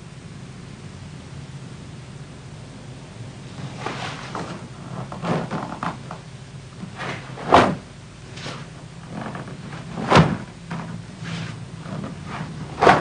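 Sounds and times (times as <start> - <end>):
steady low hum: 0.0 - 13.0
short sharp uniform snaps: 12.3 - 13.0.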